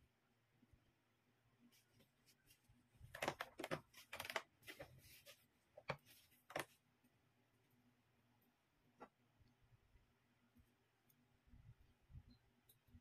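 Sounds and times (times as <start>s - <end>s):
plastic bottles crinkling and knocking: 3.0s - 5.0s.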